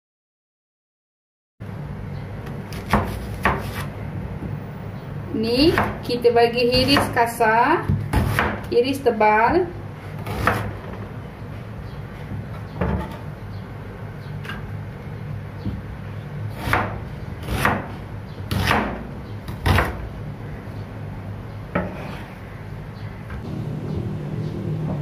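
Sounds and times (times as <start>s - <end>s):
knife slicing onion on board: 2.7s - 3.9s, 6.6s - 7.3s, 7.9s - 8.7s, 10.2s - 10.8s, 16.5s - 20.1s
low steady hum: 19.0s - 25.0s.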